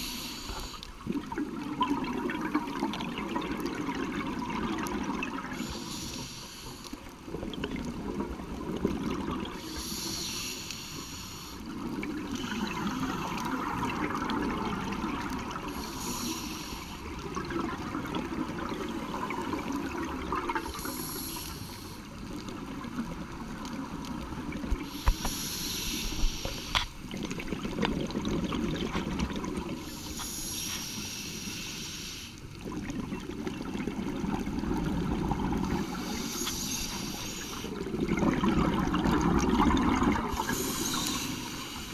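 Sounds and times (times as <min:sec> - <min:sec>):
regulator inhalation hiss: 0:00.0 - 0:00.9, 0:05.6 - 0:07.1, 0:09.6 - 0:11.7, 0:12.4 - 0:13.8, 0:15.6 - 0:17.2, 0:20.6 - 0:22.2, 0:24.8 - 0:27.0, 0:29.8 - 0:32.5, 0:35.7 - 0:37.8, 0:40.3 - 0:41.9
exhaled bubbles gurgling: 0:00.0 - 0:31.5, 0:32.4 - 0:41.9.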